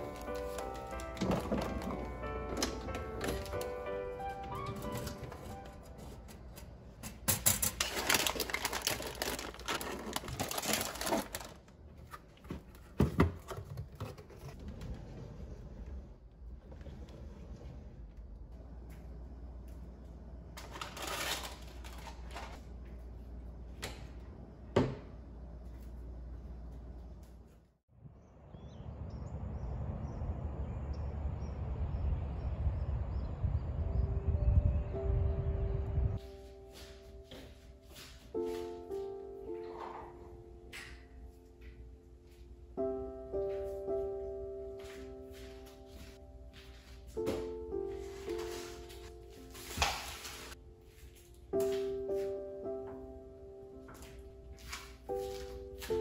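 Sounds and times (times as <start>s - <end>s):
plastic packs rustling and clicking: 0.0s - 3.9s, 7.1s - 14.5s, 20.6s - 22.6s
wind rumble on microphone: 28.0s - 36.2s
soft sustained music notes: 33.4s - 56.0s.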